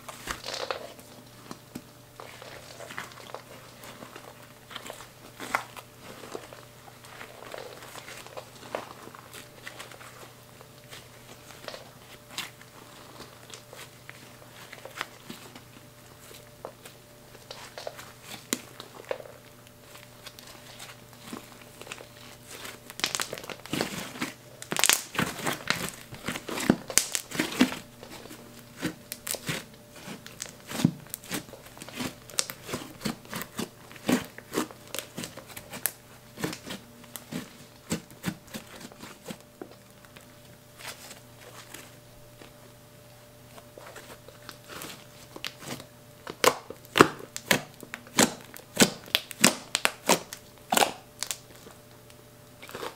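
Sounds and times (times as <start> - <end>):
slime crackling and popping: 0.1 - 41.8, 44.0 - 52.9.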